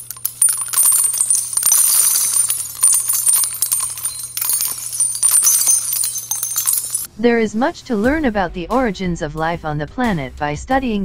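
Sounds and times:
small bells jingling: 0:00.0 - 0:07.1.

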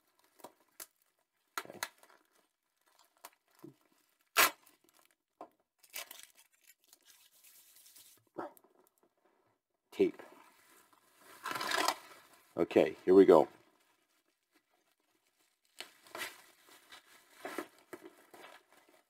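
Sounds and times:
plastic wrap crinkling: 0:00.0 - 0:08.2, 0:10.6 - 0:19.0
packing tape ripping: 0:04.2 - 0:05.1, 0:05.8 - 0:08.1, 0:11.3 - 0:12.2.

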